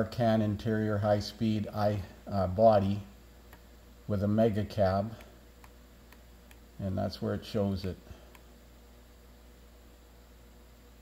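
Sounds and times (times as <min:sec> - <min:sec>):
faint hum and hiss: 0:00.0 - 0:11.0.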